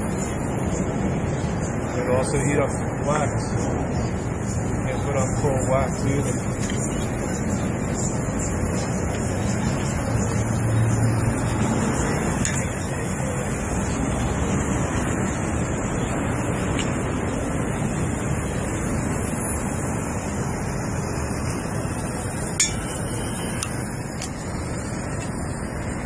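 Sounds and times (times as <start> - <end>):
gas torch hissing: 0.8 - 26.0.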